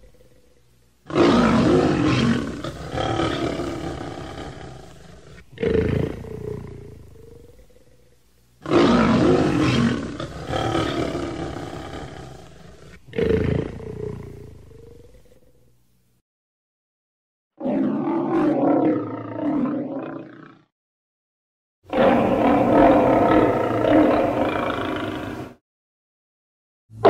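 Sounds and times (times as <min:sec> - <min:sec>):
lion roaring: 0:01.1 - 0:08.0, 0:08.6 - 0:15.2, 0:17.6 - 0:20.7, 0:21.9 - 0:25.6.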